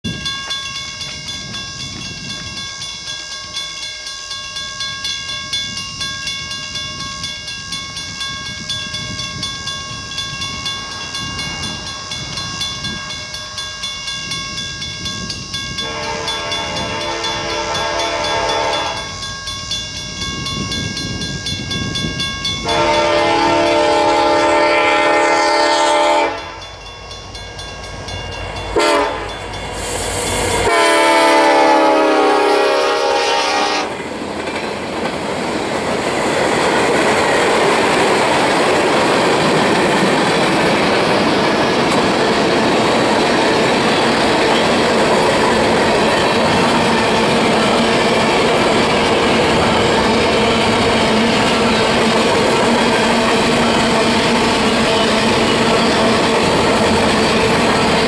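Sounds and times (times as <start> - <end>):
freight train rumble: 0.0 - 58.0
locomotive air horn blasts: 15.8 - 19.1, 22.6 - 26.6, 28.8 - 29.3, 30.6 - 34.0.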